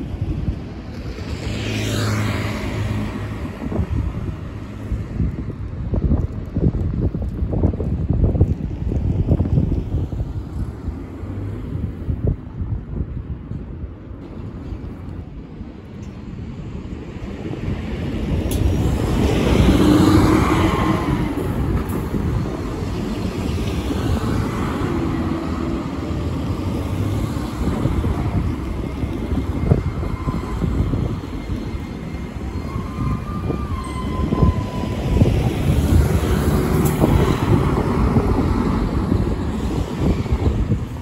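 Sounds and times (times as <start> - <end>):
bus passing: 0.0 - 41.0
car passing: 17.6 - 41.0.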